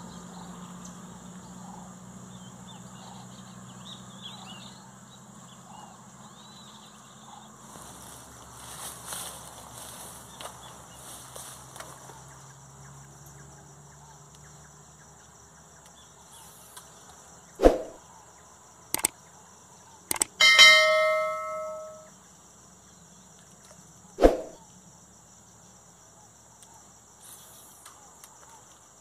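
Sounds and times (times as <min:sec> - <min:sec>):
high insect drone: 0:00.0 - 0:29.0
short thumps: 0:17.6 - 0:18.0
quick clicks: 0:18.9 - 0:19.2, 0:20.1 - 0:20.4
bright bell ding: 0:20.4 - 0:22.1.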